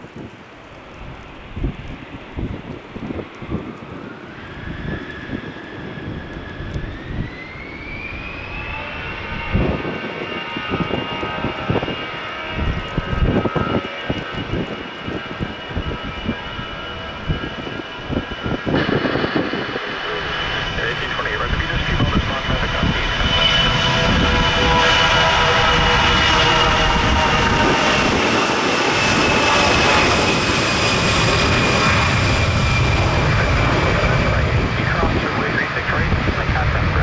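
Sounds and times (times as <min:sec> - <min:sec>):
jet engines whine: 0:00.0 - 0:37.0
uneven low rumble: 0:10.8 - 0:37.0.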